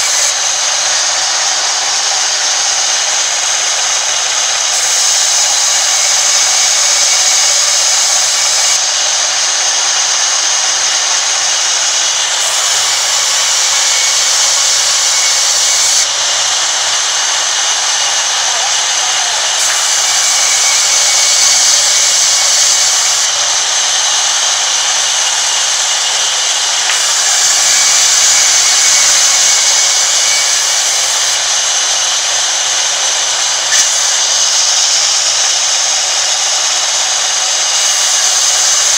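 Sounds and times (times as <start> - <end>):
band saw cutting wood: 0.0 - 38.9.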